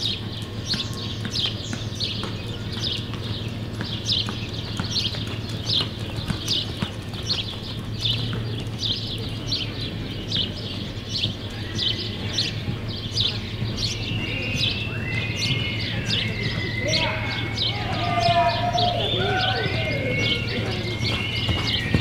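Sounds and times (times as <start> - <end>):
horse hooves loping on dirt: 0.0 - 22.0
bird whistling call: 13.2 - 22.0.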